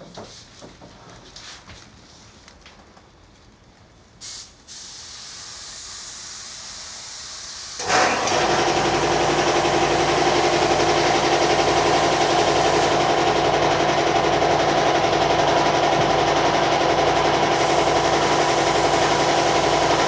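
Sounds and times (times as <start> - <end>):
short hiss: 4.2 - 7.8
sprayer motor humming with hiss: 4.2 - 15.0, 15.6 - 20.0.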